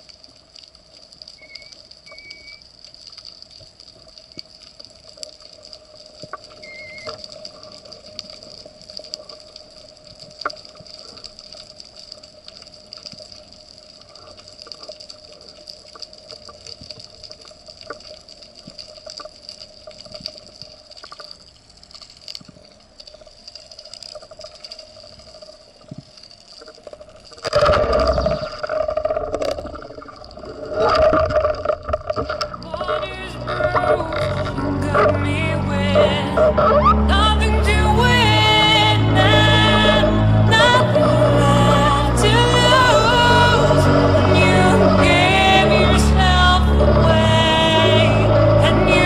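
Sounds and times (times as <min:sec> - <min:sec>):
underwater crackle of clicks: 0:00.0 - 0:35.2
steady underwater hum: 0:00.0 - 0:49.0.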